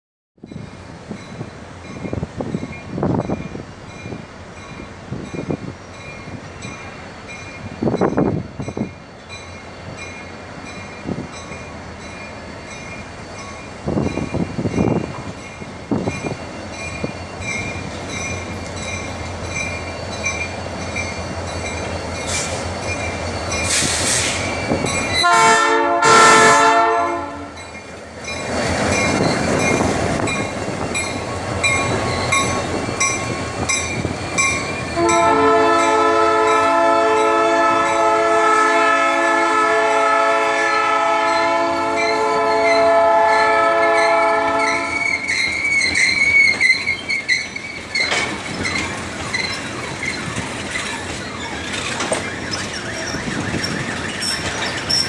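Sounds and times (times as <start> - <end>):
diesel locomotive engine drone: 0.4 - 55.0
high squeal: 15.9 - 25.2, 28.4 - 35.0, 44.0 - 55.0
train horn blast: 25.2 - 27.6, 35.0 - 45.1.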